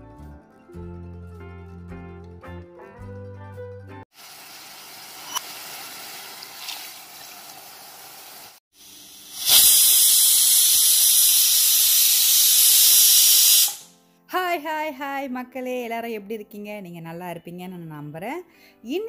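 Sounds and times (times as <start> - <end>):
vegetables sizzling in oil: 4.2 - 13.8
pressure cooker steam hiss: 4.2 - 13.9.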